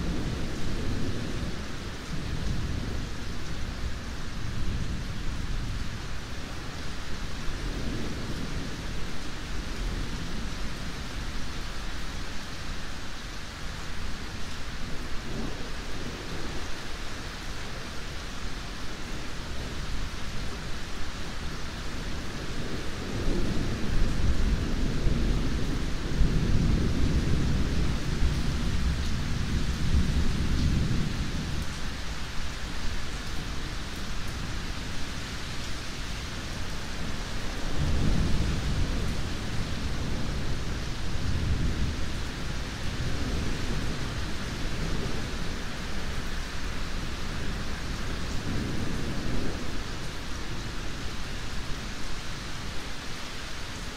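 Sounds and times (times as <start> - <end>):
steady rain hissing: 0.0 - 53.9.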